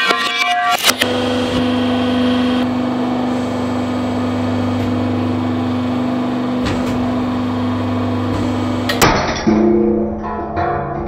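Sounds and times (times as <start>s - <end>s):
hydraulic press motor humming: 0.7s - 9.4s.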